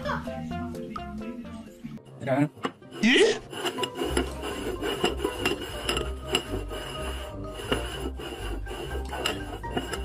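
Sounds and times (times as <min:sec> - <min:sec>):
background music with bass: 0:00.0 - 0:02.1
bowls scraping on wooden table: 0:02.6 - 0:10.0.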